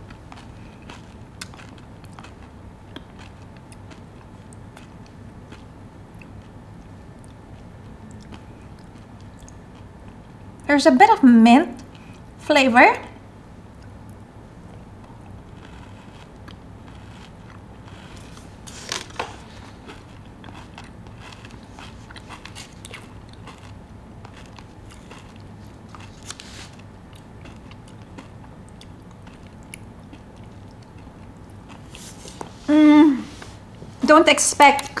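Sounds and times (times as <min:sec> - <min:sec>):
chewing crunchy chocolate bar: 0:00.0 - 0:10.7, 0:13.7 - 0:32.1
crisp pastry crackles: 0:15.0 - 0:32.4.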